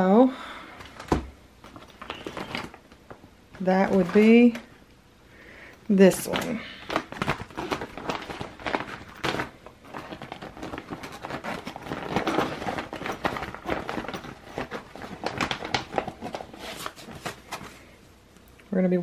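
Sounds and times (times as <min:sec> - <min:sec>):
mesh bags crinkling and rustling: 0:00.8 - 0:04.7, 0:06.0 - 0:18.0.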